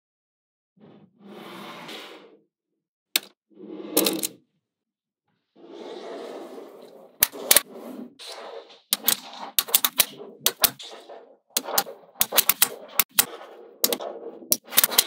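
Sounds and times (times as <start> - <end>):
magnetic balls clicking together: 8.3 - 15.0.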